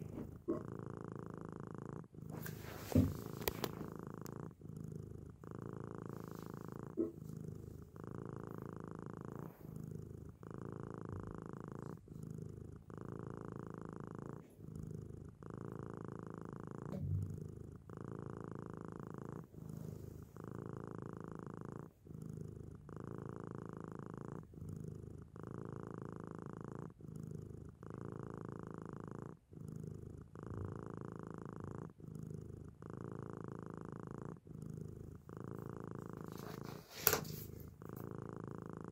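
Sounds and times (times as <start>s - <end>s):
cat purring: 0.0s - 38.9s.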